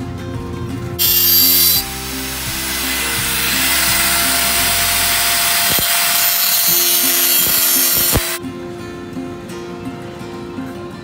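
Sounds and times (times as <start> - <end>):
angle grinder cutting sheet metal: 1.0 - 8.4.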